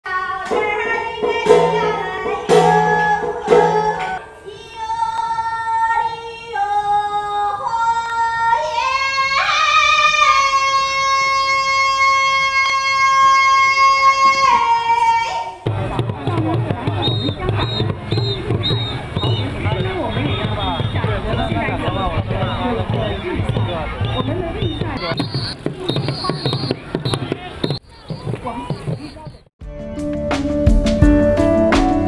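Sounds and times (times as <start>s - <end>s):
woman singing: 0.1s - 15.6s
plucked string notes: 0.5s - 4.3s.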